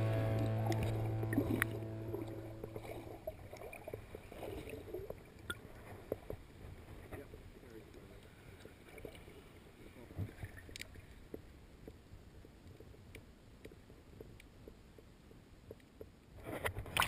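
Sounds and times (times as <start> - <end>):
muffled underwater rumble: 0.0 - 10.7
small underwater clicks and knocks: 0.4 - 9.4, 10.1 - 17.0.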